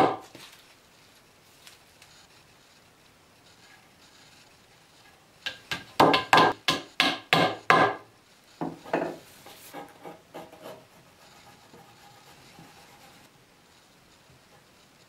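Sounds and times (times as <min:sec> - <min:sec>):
sharp wooden knocks: 0:05.5 - 0:08.0.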